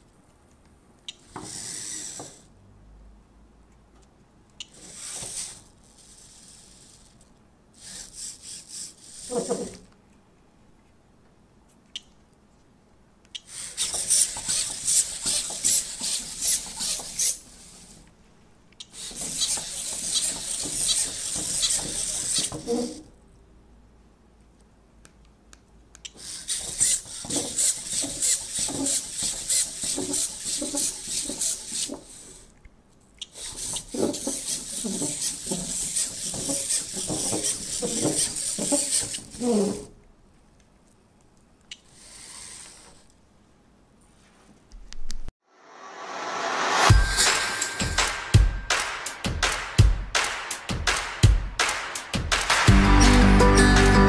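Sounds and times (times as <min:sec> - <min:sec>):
servo motors whirring: 0:01.4 - 0:02.5
click: 0:11.9 - 0:12.2, 0:13.2 - 0:13.5.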